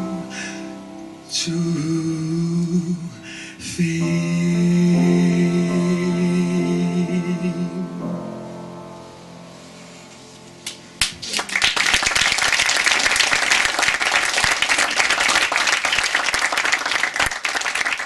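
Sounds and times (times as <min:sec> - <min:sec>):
audience applause: 0:11.0 - 0:18.0.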